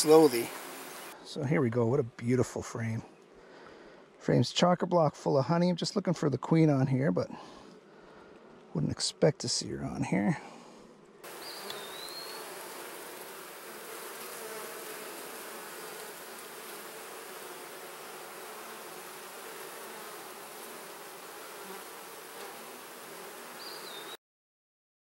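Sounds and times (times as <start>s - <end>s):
bees buzzing: 0.0s - 1.2s, 11.2s - 24.2s.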